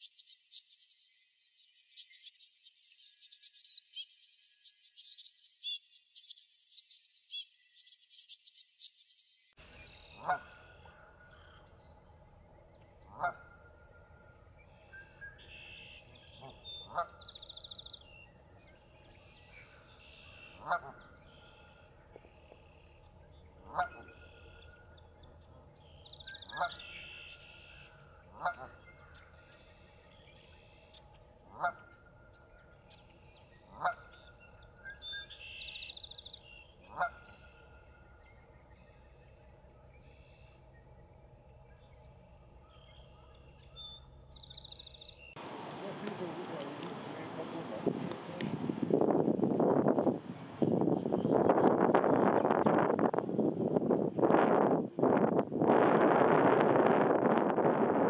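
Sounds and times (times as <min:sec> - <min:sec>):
geese honking: 0:10.1 - 0:11.6, 0:13.1 - 0:13.8, 0:15.4 - 0:17.3, 0:20.1 - 0:21.8, 0:23.6 - 0:24.6, 0:26.4 - 0:28.8, 0:31.5 - 0:32.0, 0:33.7 - 0:34.3, 0:36.8 - 0:37.9.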